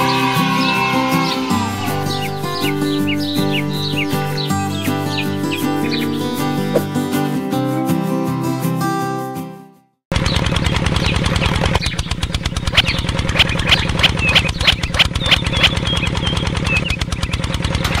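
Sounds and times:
background music: 0:00.0 - 0:09.7.

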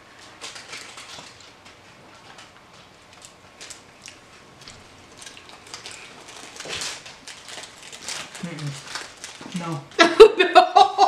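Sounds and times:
candy wrapper crinkling: 0:00.1 - 0:01.6, 0:05.1 - 0:10.0.

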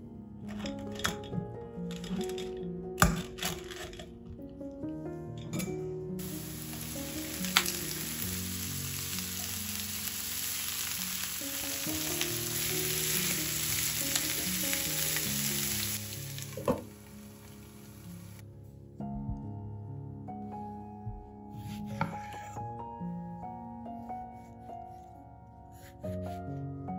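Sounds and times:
vegetables sizzling in oil: 0:06.2 - 0:18.4.

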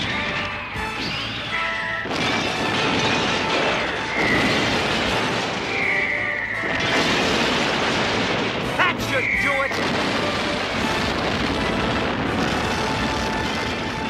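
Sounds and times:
background music: 0:00.0 - 0:14.0
cartoon explosion blast: 0:02.0 - 0:14.0
high whistling tone: 0:03.9 - 0:04.7, 0:05.6 - 0:07.0, 0:09.0 - 0:09.8.

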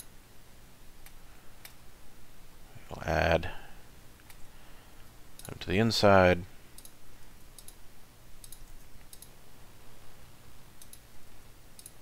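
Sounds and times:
faint low hum: 0:00.0 - 0:12.0
keyboard and mouse clicking: 0:07.6 - 0:07.8, 0:08.4 - 0:09.3, 0:10.8 - 0:11.0, 0:11.8 - 0:12.0.

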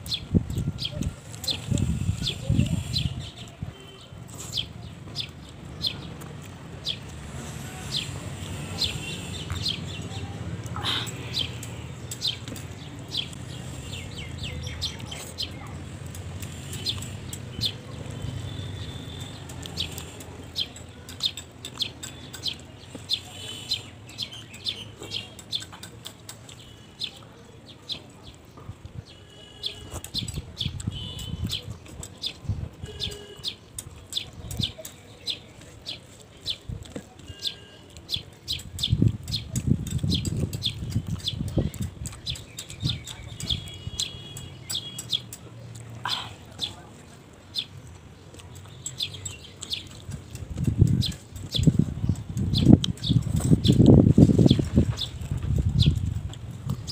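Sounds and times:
small birds chirping: 0:00.0 - 0:56.9.

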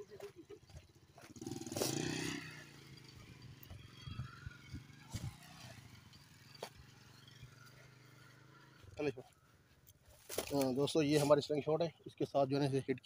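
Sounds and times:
engine hum: 0:00.0 - 0:11.0.

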